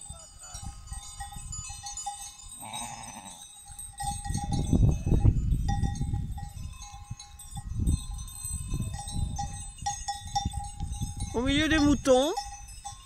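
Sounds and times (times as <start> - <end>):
animal bells ringing: 0.0 - 13.0
sheep bleat: 2.6 - 3.4.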